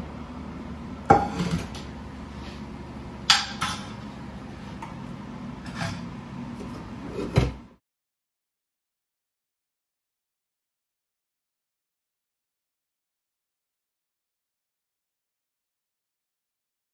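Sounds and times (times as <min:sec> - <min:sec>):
dishwasher rack thump: 0:01.1 - 0:01.8
dishes and pans clattering: 0:01.1 - 0:01.9, 0:03.3 - 0:04.0, 0:05.6 - 0:07.6.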